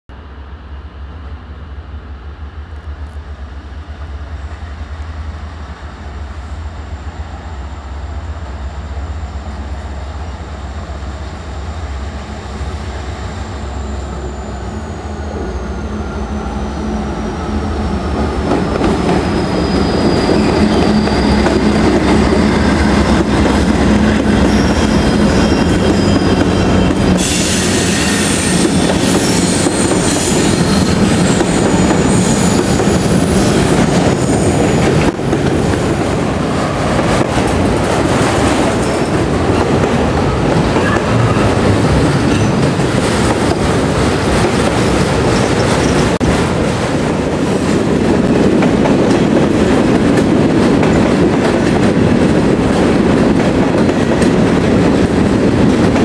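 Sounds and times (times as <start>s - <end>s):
diesel locomotive rumble: 0.1s - 56.0s
wheels hissing on rail: 11.6s - 46.4s.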